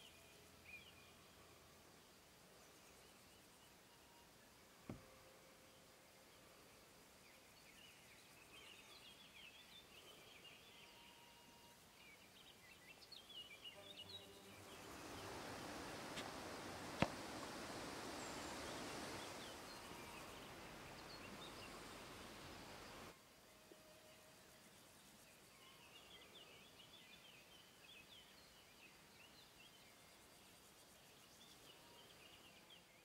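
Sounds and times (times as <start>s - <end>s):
small birds twittering: 12.1s - 23.1s.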